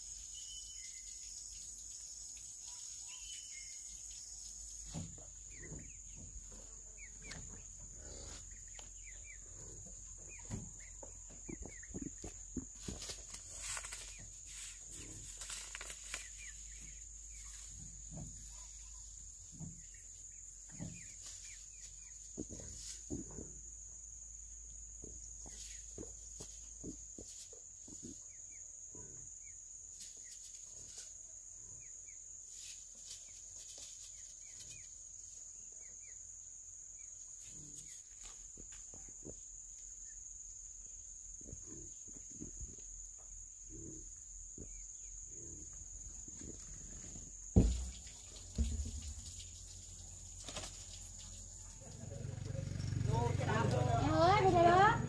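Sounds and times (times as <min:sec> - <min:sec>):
high insect drone: 0:00.0 - 0:31.1, 0:31.8 - 0:55.0
hands rustling loose soil: 0:11.7 - 0:17.5.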